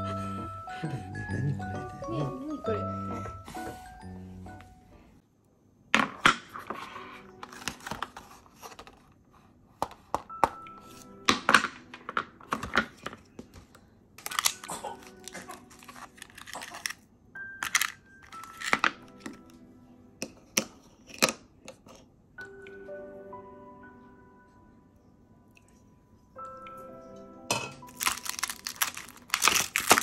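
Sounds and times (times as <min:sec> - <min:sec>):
soft background music: 0:00.0 - 0:05.2, 0:06.6 - 0:09.0, 0:09.8 - 0:30.0
plastic tray clicks and crackles: 0:27.9 - 0:30.0.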